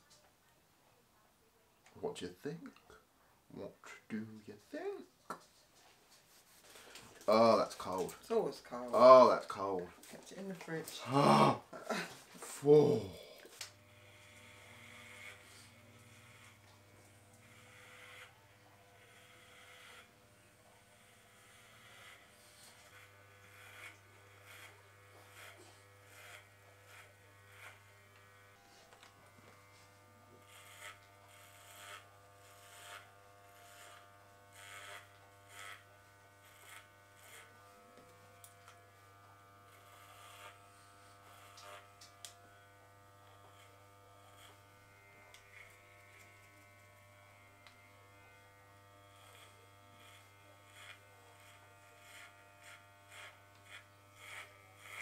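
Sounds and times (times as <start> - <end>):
electric hair clippers buzzing: 13.4 - 55.0
blades swishing through hair: 13.5 - 18.4, 19.0 - 55.0.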